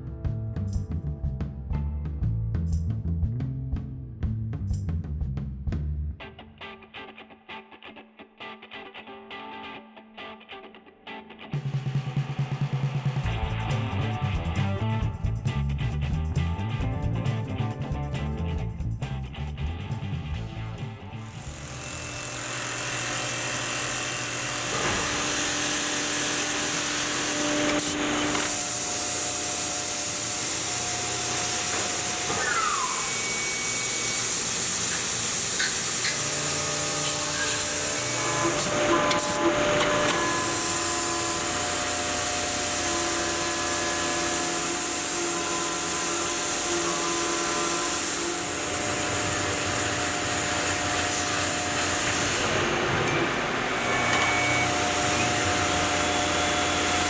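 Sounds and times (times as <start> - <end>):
mill spindle cutting tones: 21.2 - 57.0.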